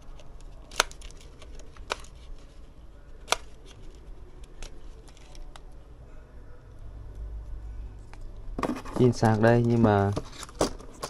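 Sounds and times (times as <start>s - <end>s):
low steady hum: 0.0s - 11.0s
objects clicking and knocking: 8.6s - 11.0s.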